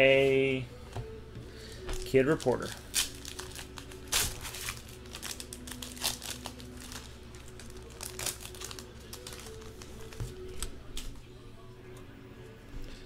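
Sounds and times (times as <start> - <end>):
foil wrappers crinkling: 2.0 - 11.2.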